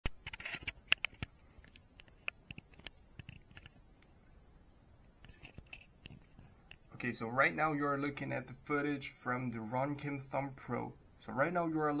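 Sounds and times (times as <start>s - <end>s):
fingers clicking and rubbing camera: 0.1s - 3.8s.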